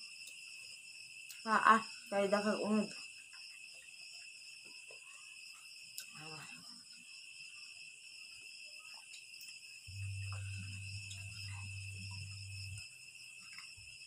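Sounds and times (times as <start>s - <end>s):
crickets chirring: 0.0s - 14.0s
low hum: 9.9s - 12.8s.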